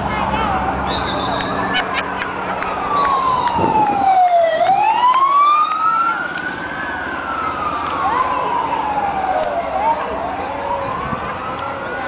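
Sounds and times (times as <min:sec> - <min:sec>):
siren wailing: 0:02.6 - 0:12.0.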